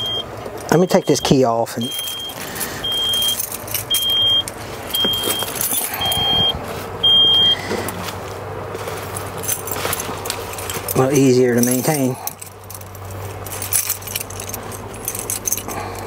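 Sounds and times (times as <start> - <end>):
warning buzzer beeping: 0.0 - 4.4, 5.0 - 7.6
keys jingling: 0.0 - 6.5, 7.9 - 16.0.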